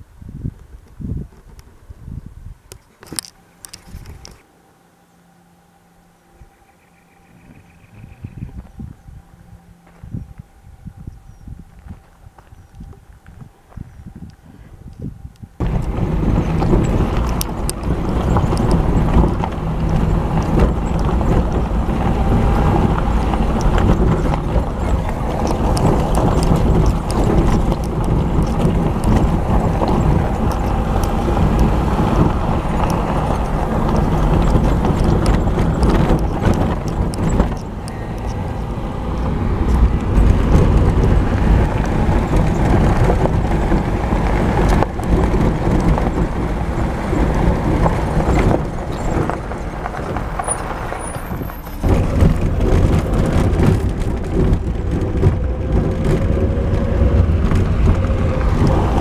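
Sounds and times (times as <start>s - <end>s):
vehicle engine and tyre rumble: 0.0s - 59.0s
suspension knocking and rattling: 15.6s - 59.0s.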